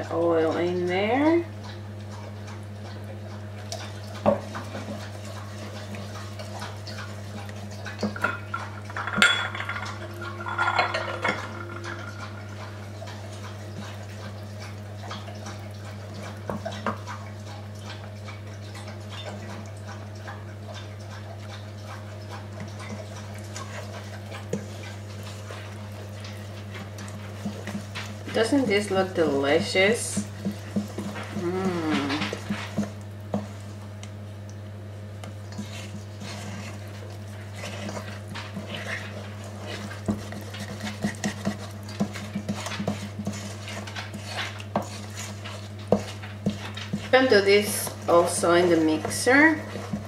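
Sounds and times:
spoon scraping metal bowl: 35.6 - 50.0.

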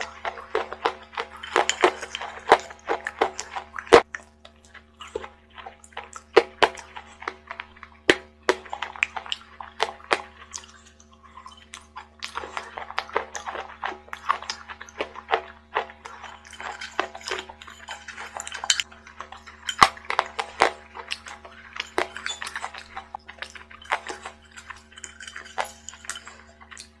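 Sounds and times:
spoon scraping in a cup: 0.0 - 4.0, 11.4 - 27.0
chalk crunching and chewing: 0.0 - 27.0.

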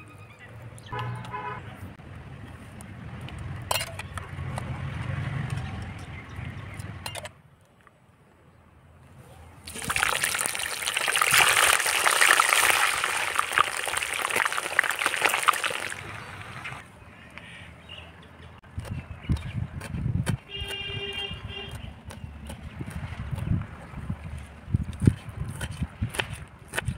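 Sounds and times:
chicken deep-frying in oil: 9.6 - 16.8.

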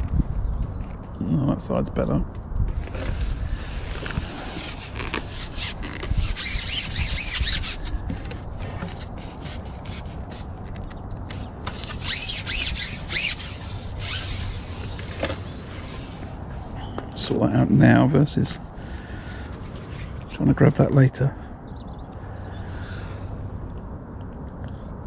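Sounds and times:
scratchy rubbing and rustling: 2.7 - 16.7, 19.6 - 20.4.

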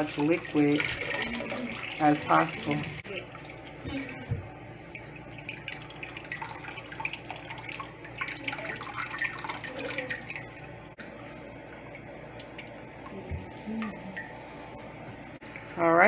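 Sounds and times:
liquid dripping into a steel pot: 11.5 - 14.3.

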